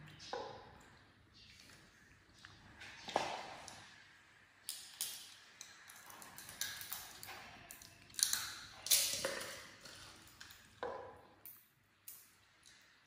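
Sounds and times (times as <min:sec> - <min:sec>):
monkey cracking seed shells: 0:04.7 - 0:10.7.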